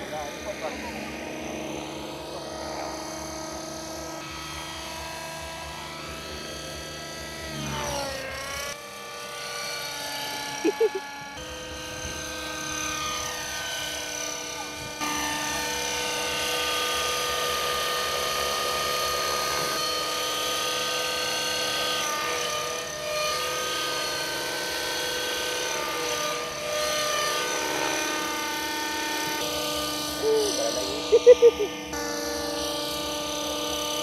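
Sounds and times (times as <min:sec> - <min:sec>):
model helicopter engine whine: 0:00.0 - 0:34.0.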